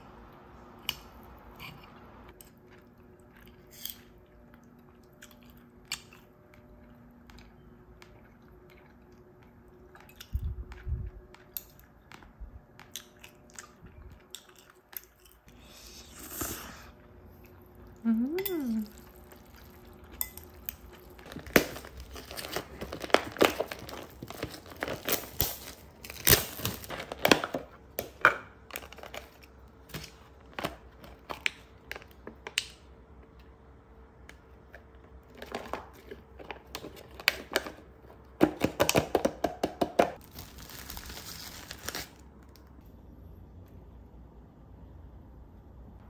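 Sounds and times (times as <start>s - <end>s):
plastic rustling: 21.2s - 27.6s, 40.2s - 42.6s.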